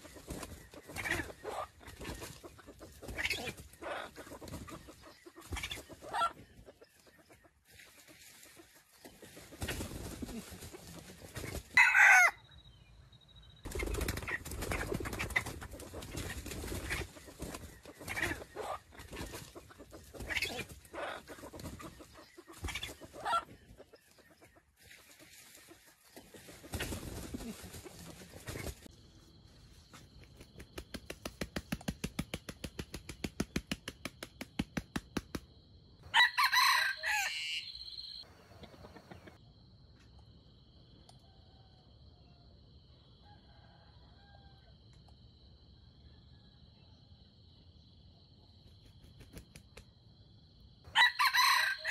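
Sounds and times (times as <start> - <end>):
wings flapping: 0.0 - 6.3, 7.8 - 11.8, 13.7 - 23.6, 24.8 - 28.9, 29.9 - 35.5, 48.8 - 49.8
rooster clucking: 0.0 - 7.4, 14.2 - 24.4, 36.1 - 39.4.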